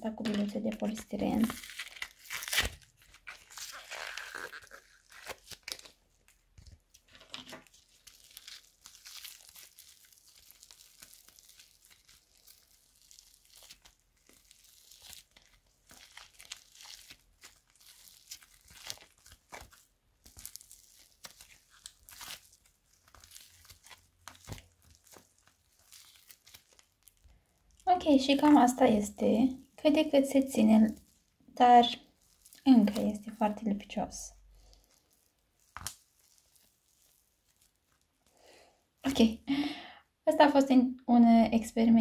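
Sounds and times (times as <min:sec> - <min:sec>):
sticky slime tearing and crackling: 0:00.2 - 0:28.7, 0:32.0 - 0:33.2, 0:34.5 - 0:38.4.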